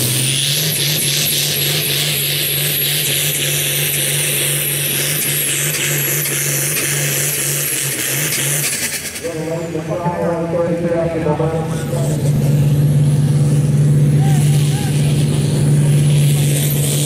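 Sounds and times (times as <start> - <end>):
tractor diesel engine drone: 0.0 - 17.0
high turbo whistle: 11.7 - 17.0.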